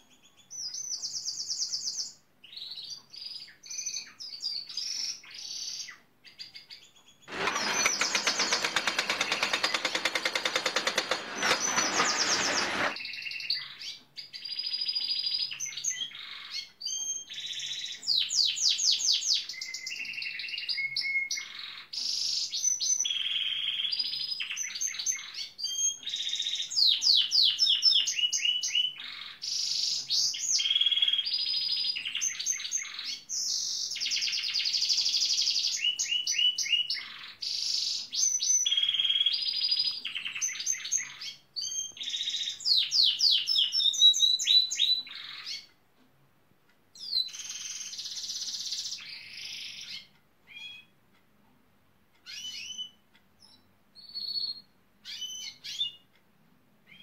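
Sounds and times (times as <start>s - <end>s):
canary singing trills: 52.2s - 56.1s.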